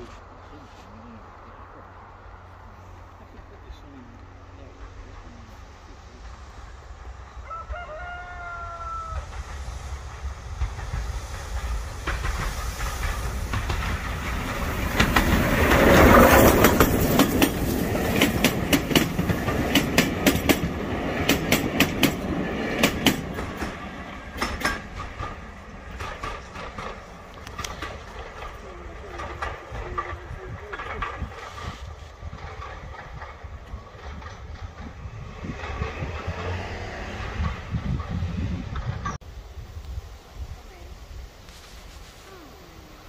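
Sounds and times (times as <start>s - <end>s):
steam train passing: 0.0s - 43.0s
wheels clacking over rail joints: 9.2s - 39.2s.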